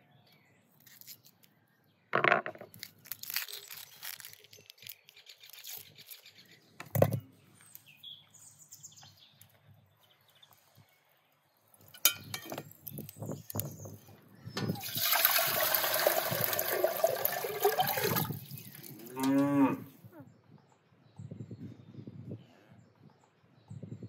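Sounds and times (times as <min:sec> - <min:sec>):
water pouring into metal pot: 0:14.7 - 0:19.3
cow mooing: 0:18.9 - 0:20.0.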